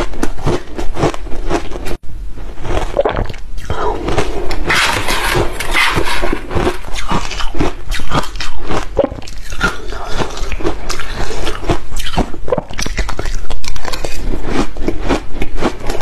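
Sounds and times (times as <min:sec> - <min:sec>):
chewing crushed ice: 0:00.0 - 0:16.0.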